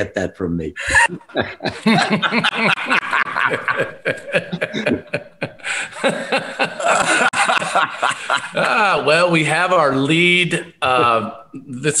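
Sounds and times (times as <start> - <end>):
men laughing: 0.8 - 9.6.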